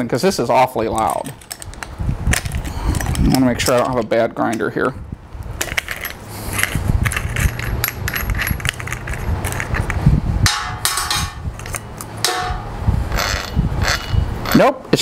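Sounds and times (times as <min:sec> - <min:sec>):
angle grinder gears rattling: 0:05.6 - 0:14.6.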